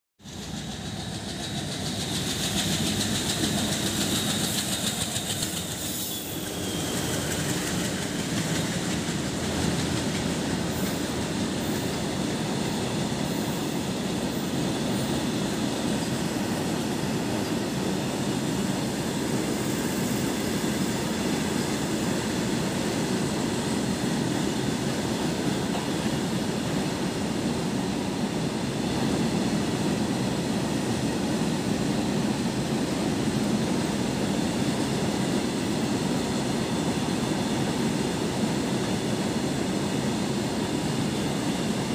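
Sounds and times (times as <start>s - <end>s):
locomotive high whine: 0.2s - 41.9s
train wheels rumbling on rails: 0.2s - 41.9s.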